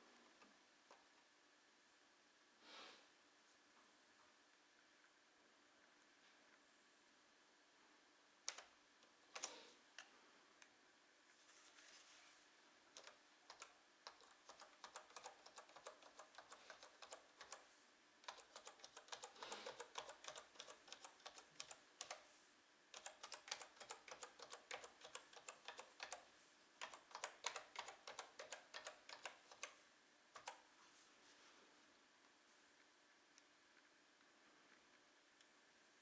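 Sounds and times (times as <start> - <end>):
laptop keyboard typing: 8.4 - 9.7, 12.9 - 22.3, 22.9 - 30.7.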